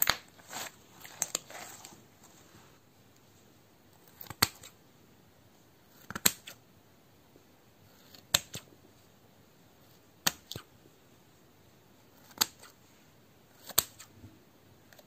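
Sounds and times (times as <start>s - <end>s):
scissors snipping slime: 6.0s - 6.6s, 12.2s - 12.7s, 13.6s - 14.1s.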